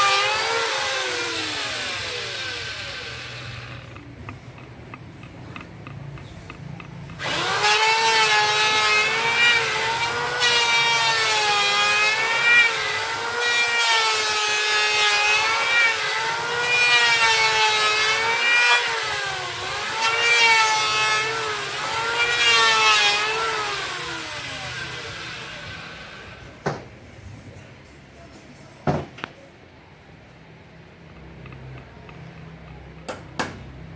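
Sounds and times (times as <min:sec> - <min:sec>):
electric power tool whining: 0:00.0 - 0:26.5.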